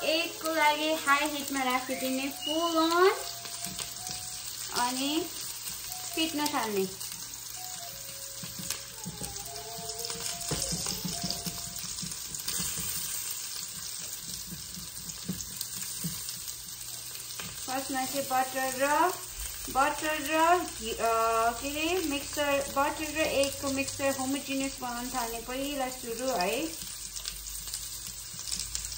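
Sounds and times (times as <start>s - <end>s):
background music with melody: 0.0s - 15.8s
eggs sizzling in frying pan: 0.0s - 28.9s
spatula knocking pan: 8.4s - 16.4s.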